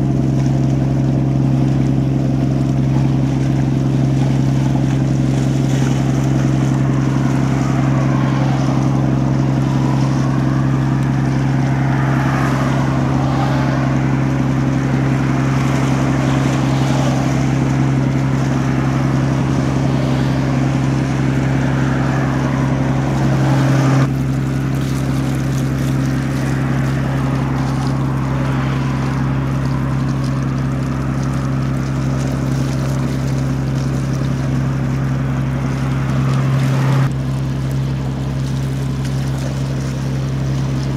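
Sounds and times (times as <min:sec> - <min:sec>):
ship diesel engine droning: 0:00.0 - 0:40.9
water hissing: 0:00.0 - 0:40.9.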